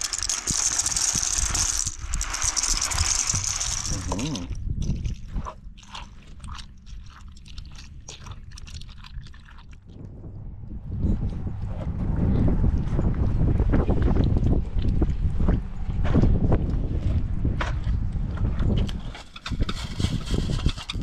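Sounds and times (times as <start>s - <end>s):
wooden spoon scraping pot: 0.0s - 4.6s
dry pasta pouring into pot: 0.0s - 5.2s.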